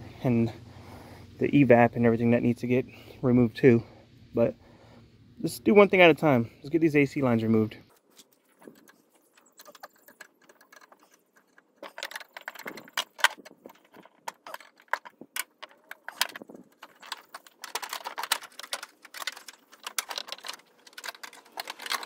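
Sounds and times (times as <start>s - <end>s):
metal tools clinking and rattling: 8.5s - 22.0s.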